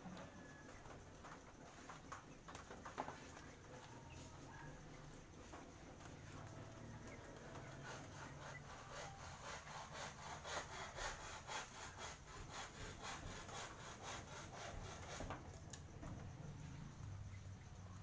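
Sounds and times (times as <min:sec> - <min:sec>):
hand saw cutting wood: 0:06.9 - 0:15.5.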